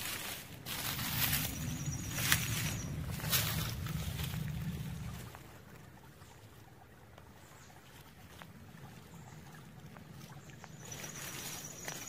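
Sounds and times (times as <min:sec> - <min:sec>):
rustling leaves with small clicks: 0:00.0 - 0:12.0.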